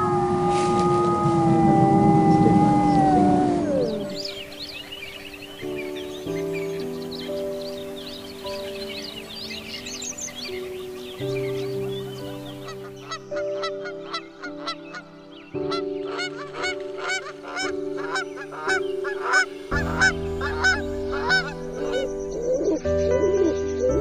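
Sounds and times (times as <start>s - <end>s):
pigeon cooing: 0.0s - 4.3s
soft background music: 0.0s - 24.0s
honking animal calls: 16.1s - 22.1s.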